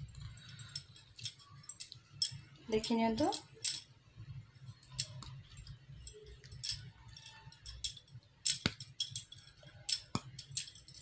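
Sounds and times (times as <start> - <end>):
gravy boiling with pops and crackles: 0.0 - 11.0.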